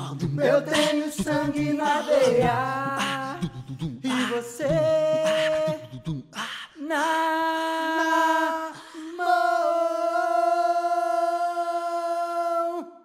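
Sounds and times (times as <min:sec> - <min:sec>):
person singing long notes: 0:00.0 - 0:06.1.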